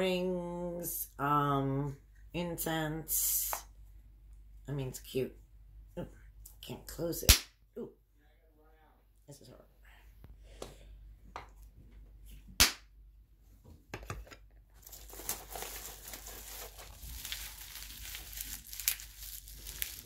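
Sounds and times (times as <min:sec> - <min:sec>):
bubble wrap crinkling: 0:14.7 - 0:20.0.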